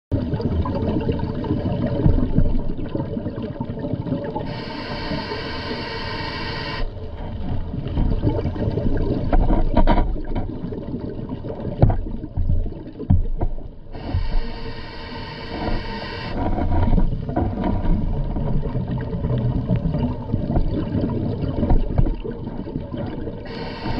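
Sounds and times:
low rumbling underwater noise: 0:00.1 - 0:23.9
buzzing hiss: 0:04.5 - 0:06.9, 0:14.0 - 0:16.4, 0:23.5 - 0:23.9
clicks and crackles: 0:09.1 - 0:10.7.

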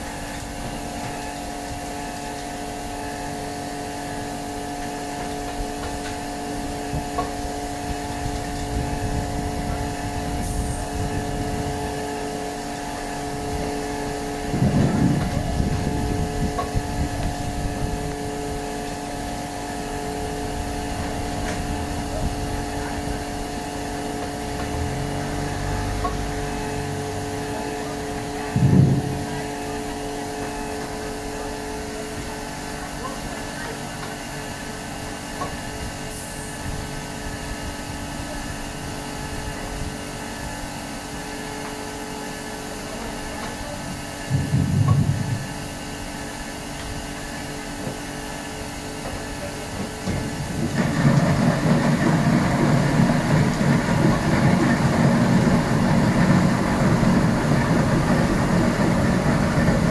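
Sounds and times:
fruit press machine hum: 0:00.0 - 0:59.9
loud low thump: 0:28.5 - 0:29.2.

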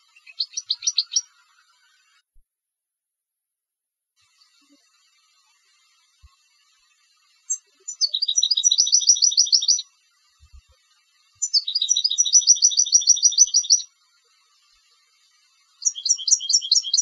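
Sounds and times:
finch singing with trills: 0:00.0 - 0:01.3, 0:07.5 - 0:09.9, 0:11.4 - 0:13.9, 0:15.8 - 0:17.0.

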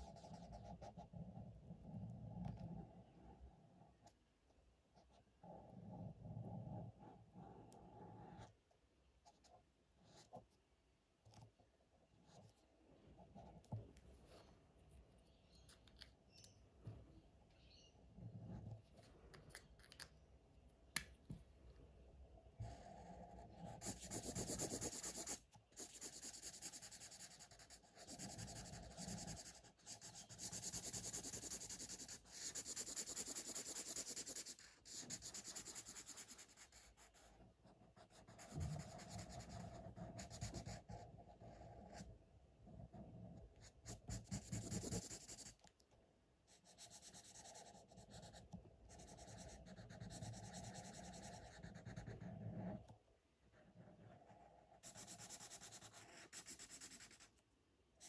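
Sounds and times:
marker scratching on paper: 0:00.0 - 0:01.2, 0:22.6 - 0:37.3, 0:38.0 - 0:42.0, 0:43.6 - 0:45.6, 0:46.6 - 0:52.7, 0:53.8 - 0:57.3.

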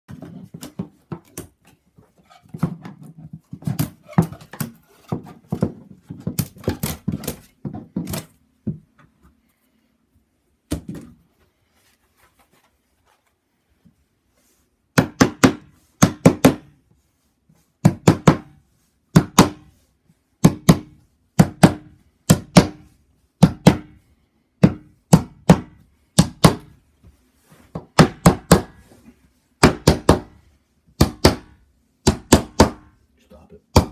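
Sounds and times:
hammer driving nails: 0:31.0 - 0:32.9.

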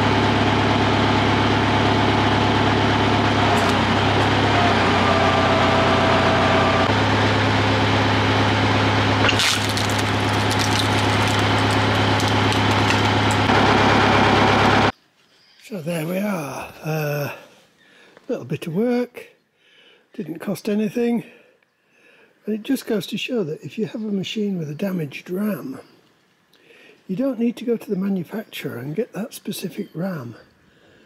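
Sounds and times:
tractor engine running: 0:00.0 - 0:14.9
log splitting crack: 0:03.4 - 0:05.0, 0:09.2 - 0:13.6.

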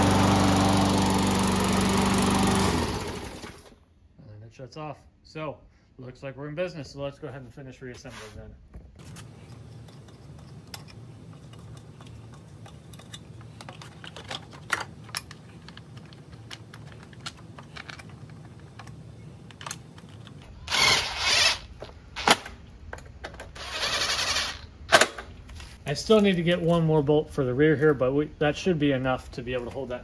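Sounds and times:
bolts and parts clicking: 0:09.0 - 0:25.4.

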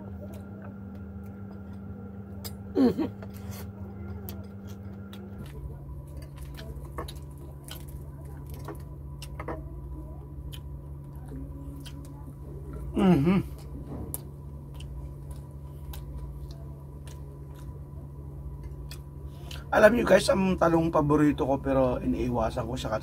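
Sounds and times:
low hum: 0:00.0 - 0:23.0
mouth chewing: 0:03.2 - 0:09.4, 0:10.4 - 0:19.7.

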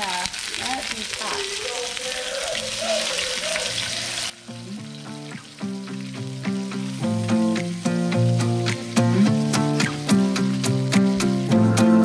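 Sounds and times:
fish sizzling in oil: 0:00.0 - 0:12.0
background music with beat: 0:04.5 - 0:12.0.

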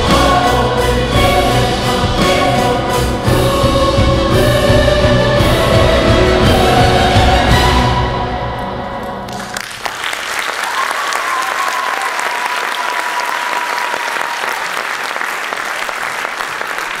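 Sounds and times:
music: 0:00.0 - 0:09.8
audience applauding: 0:09.1 - 0:17.0.

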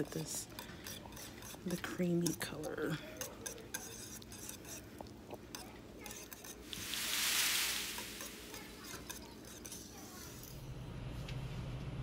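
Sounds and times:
spoon clicking and scraping: 0:00.0 - 0:06.9, 0:07.7 - 0:10.6
soup swishing: 0:03.0 - 0:10.5.

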